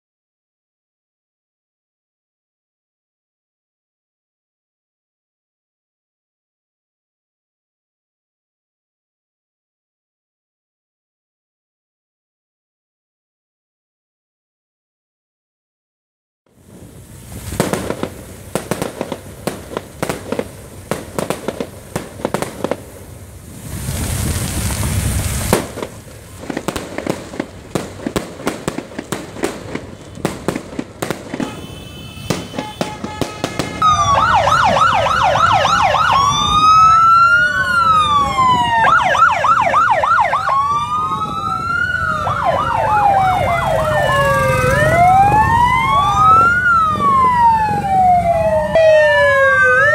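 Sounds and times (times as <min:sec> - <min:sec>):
rushing noise: 0:16.5 - 0:38.2
street noise: 0:16.5 - 0:49.9
electronic siren yelp and wail: 0:33.8 - 0:49.9.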